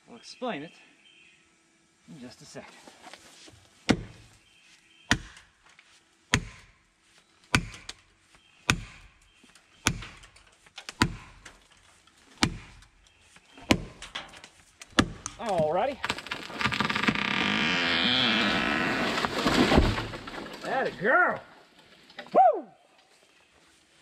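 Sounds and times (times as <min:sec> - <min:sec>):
axe driving a wedge: 0:12.4 - 0:12.9.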